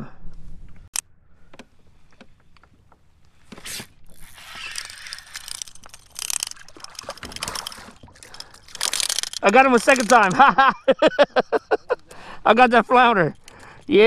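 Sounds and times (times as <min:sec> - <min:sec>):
fishing reel ticking and rattling: 0:04.1 - 0:10.3.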